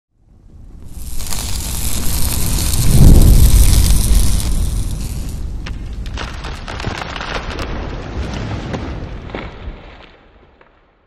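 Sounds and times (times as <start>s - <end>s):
low rumble: 0.3s - 6.6s
dense crackling: 0.8s - 8.0s.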